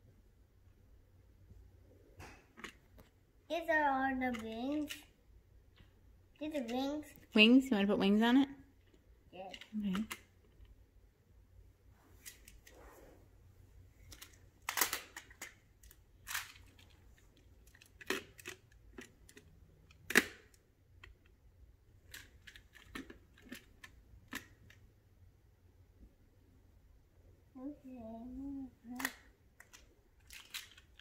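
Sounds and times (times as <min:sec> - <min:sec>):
plastic magnetic tiles clicking: 0:28.9 - 0:31.0.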